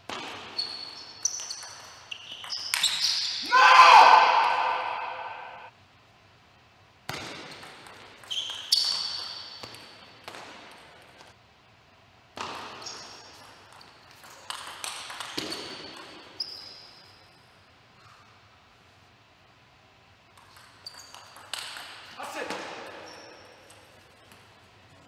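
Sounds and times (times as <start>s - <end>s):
shoes squeaking on floor: 0.4s - 3.4s, 8.2s - 9.6s, 20.8s - 21.4s, 22.9s - 24.2s.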